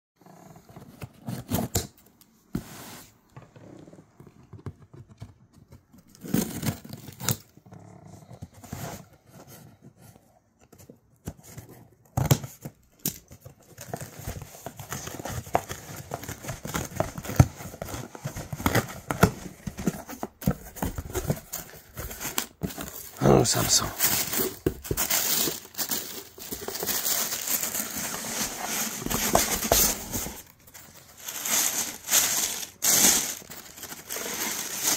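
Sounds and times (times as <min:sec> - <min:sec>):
paper packing crinkling: 0:12.4 - 0:34.9
cardboard scraping and knocking: 0:26.4 - 0:31.1.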